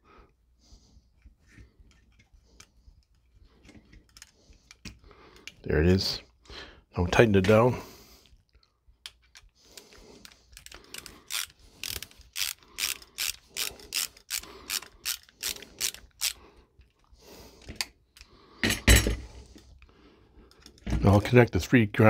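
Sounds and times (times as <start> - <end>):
ratcheting screwdriver clicking: 9.0 - 17.0.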